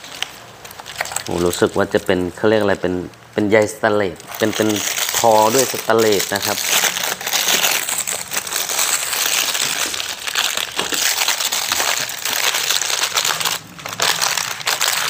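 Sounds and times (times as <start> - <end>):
plastic wrap crinkling: 0.0 - 15.0.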